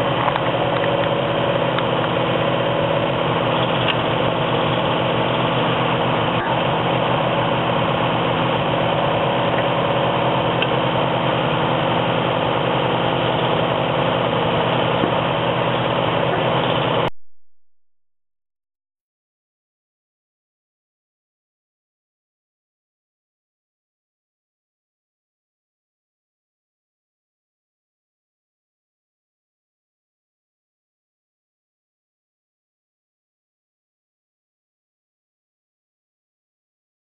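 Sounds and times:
tractor engine running: 0.0 - 17.1.

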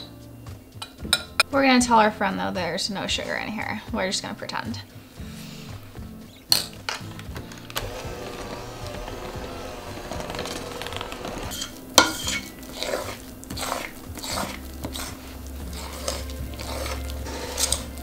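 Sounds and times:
electric hand mixer running: 7.7 - 11.8, 12.7 - 18.0
scraping and clinking in glass bowl: 11.4 - 18.0.

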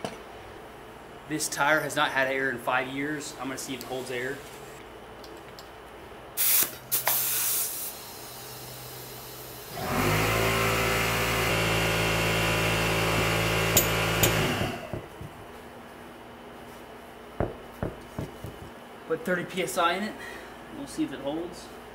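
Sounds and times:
air chuck hissing: 6.4 - 9.8
air compressor motor running: 6.4 - 15.6.

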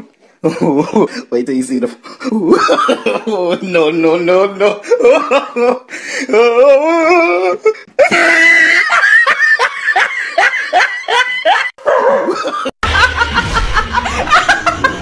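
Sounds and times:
woman laughing: 7.0 - 15.0
low bass: 12.8 - 15.0.

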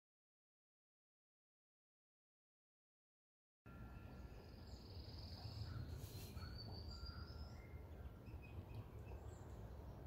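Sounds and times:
birds chirping: 4.1 - 10.0.

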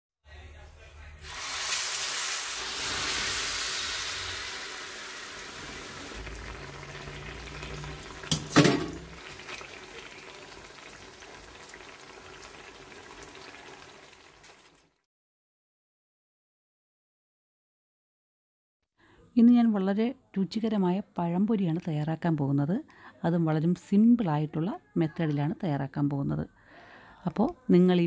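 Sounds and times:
frying in hot oil sizzling: 1.2 - 15.0.

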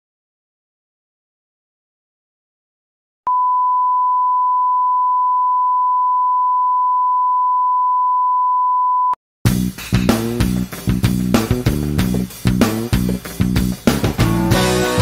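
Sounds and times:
steady pure test tone beep: 3.3 - 9.2.

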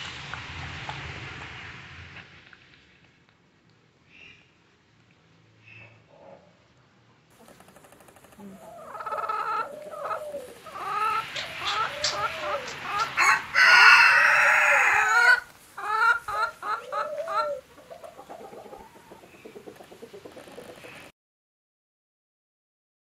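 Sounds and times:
hens clucking: 7.3 - 21.1
rooster crowing: 8.6 - 17.6.

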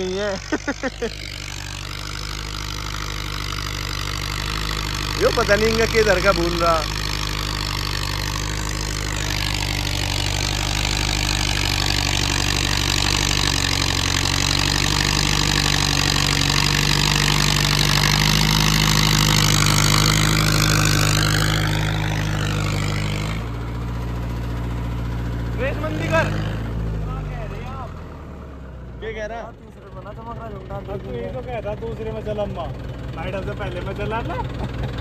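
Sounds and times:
rotavator churning soil: 0.0 - 23.6
tractor diesel engine under load: 0.0 - 35.0.

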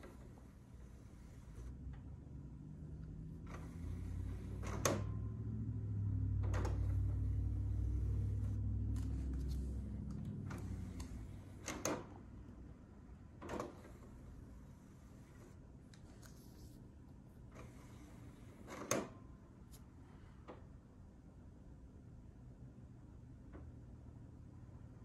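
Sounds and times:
disc tray motor hum: 0.0 - 15.8, 17.4 - 19.2.

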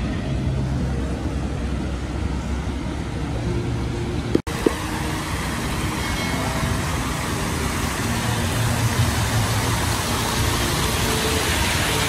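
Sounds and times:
fountain jets splashing: 0.0 - 12.0.

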